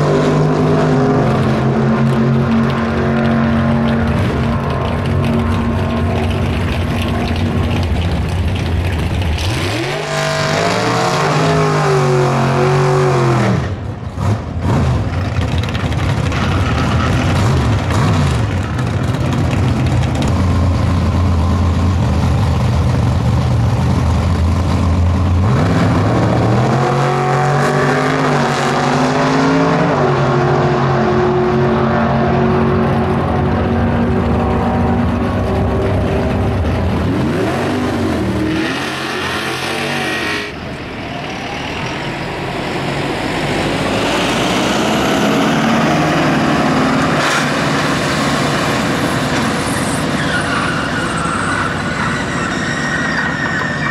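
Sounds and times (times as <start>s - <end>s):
drag racing car engines: 0.0s - 53.9s.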